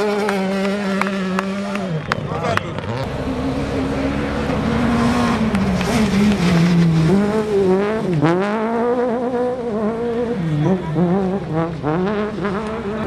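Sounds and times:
rally car engine revving hard: 0:00.0 - 0:13.0.

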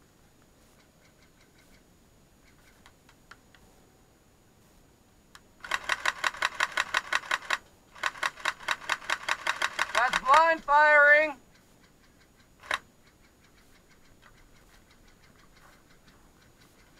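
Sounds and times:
airsoft rifle automatic fire: 0:05.6 - 0:10.4, 0:12.6 - 0:12.8.

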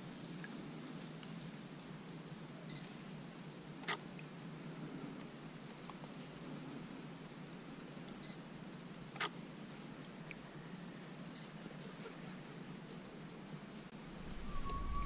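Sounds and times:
camera focus beep: 0:02.7 - 0:02.9, 0:08.2 - 0:08.4.

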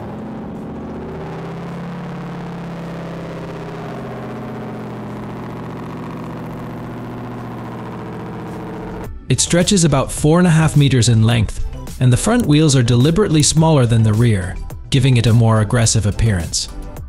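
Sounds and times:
engine idling: 0:00.0 - 0:09.1.

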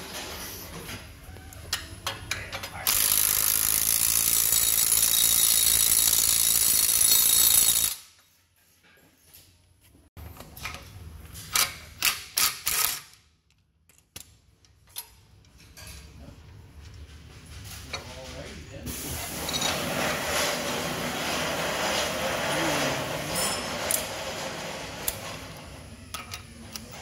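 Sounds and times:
power ratchet running: 0:02.9 - 0:08.1.

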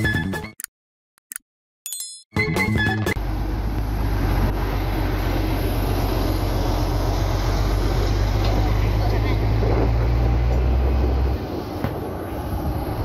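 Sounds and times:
excavator diesel engine running: 0:03.1 - 0:13.0.

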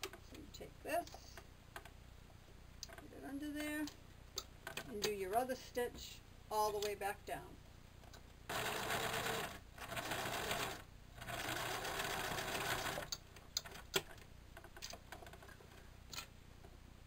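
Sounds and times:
sewing machine stitching: 0:08.5 - 0:13.2.

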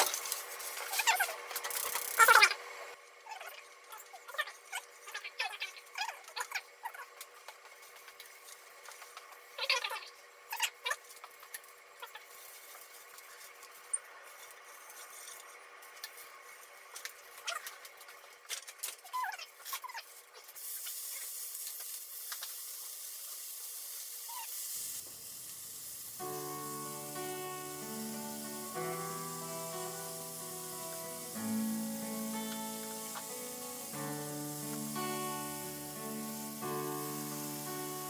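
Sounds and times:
fat sizzling in a frying pan: 0:19.7 - 0:38.0
beef sizzling in a pan: 0:19.9 - 0:38.0
music: 0:26.2 - 0:38.0.

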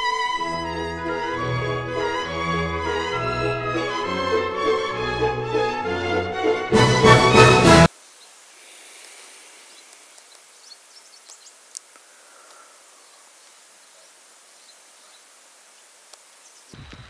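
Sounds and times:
steady high hiss: 0:07.8 - 0:17.0
insect ticks: 0:08.0 - 0:16.8
bird chirps: 0:09.5 - 0:15.3.

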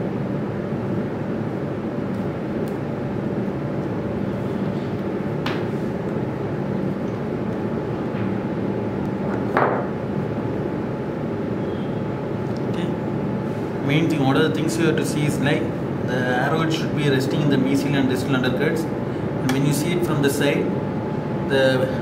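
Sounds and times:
background hum and hiss: 0:00.0 - 0:22.0.

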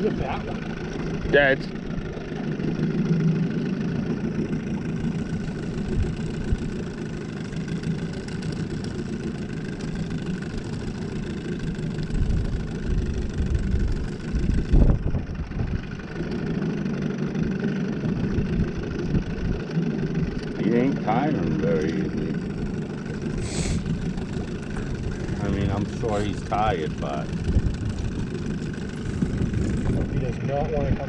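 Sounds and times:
outboard motor idling: 0:00.0 - 0:31.0
low rumbling bumps: 0:12.0 - 0:16.5, 0:18.1 - 0:31.0.

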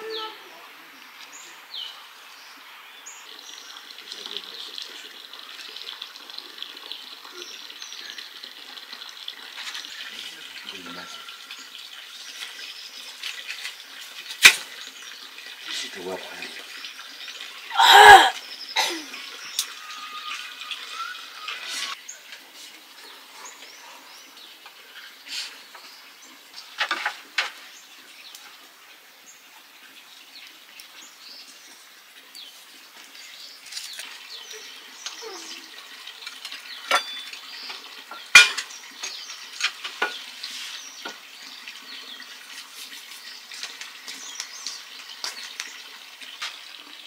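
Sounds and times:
wood fire crackling: 0:12.0 - 0:18.1, 0:42.5 - 0:46.8
metal pots and dishes clinking: 0:36.4 - 0:40.2.

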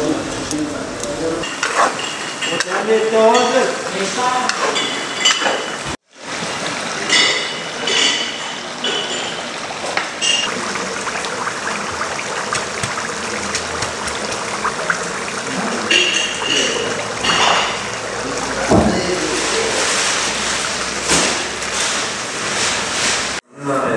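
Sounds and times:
running water rushing: 0:00.0 - 0:23.4
people talking: 0:02.5 - 0:04.9, 0:15.4 - 0:20.0, 0:23.5 - 0:23.9.

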